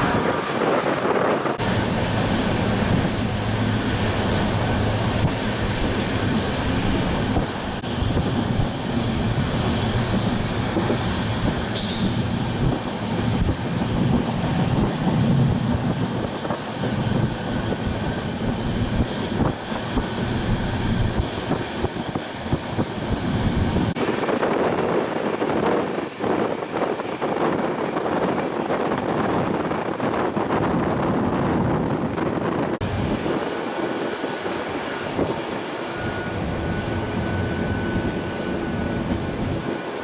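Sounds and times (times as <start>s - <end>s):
rushing wind: 0.0s - 40.0s
train wheels on rail: 0.0s - 40.0s
high-pitched wheel squeal: 33.0s - 39.8s.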